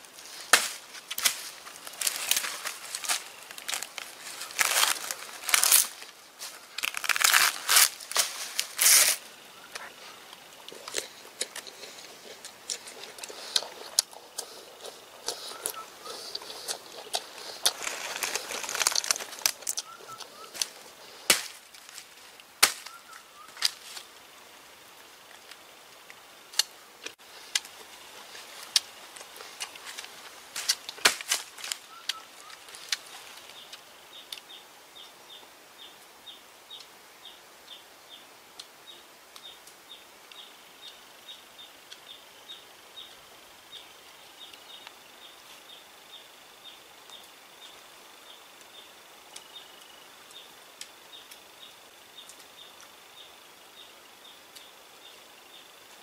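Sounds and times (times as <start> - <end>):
plant stem tearing and snapping: 6.8 - 9.2, 17.1 - 20.7.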